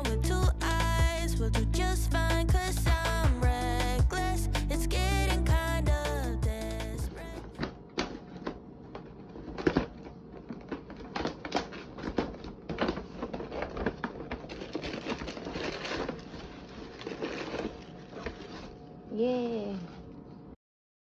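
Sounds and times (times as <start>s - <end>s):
paper bag rustling and crinkling: 8.0s - 18.8s.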